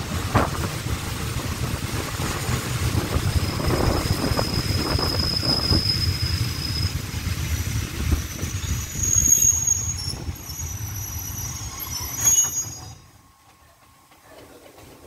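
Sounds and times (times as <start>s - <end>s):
train coach rumbling over rails: 0.0s - 15.0s
wheel and brake squeals: 3.4s - 13.7s.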